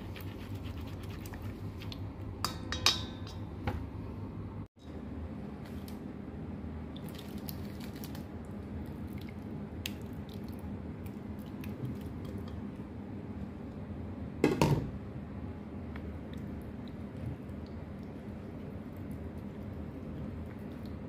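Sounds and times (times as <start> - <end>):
steady low hum: 0.0 - 21.0
wet squishes and drips: 7.0 - 12.6, 16.1 - 21.0.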